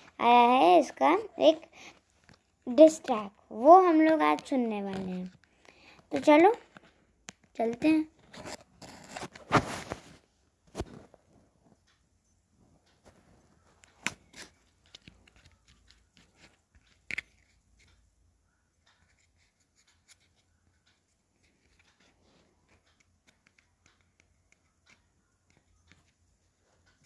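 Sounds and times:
tablet being handled: 1.9 - 12.0, 12.8 - 18.1, 18.8 - 27.0
fingers tapping touchscreen: 12.8 - 18.2, 18.8 - 27.0.

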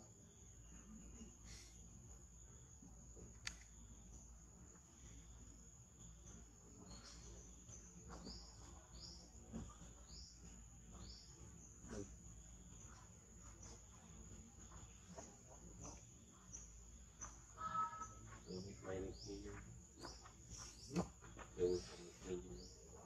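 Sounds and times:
high insect drone: 0.0 - 23.0
soft clicks: 3.3 - 3.8.

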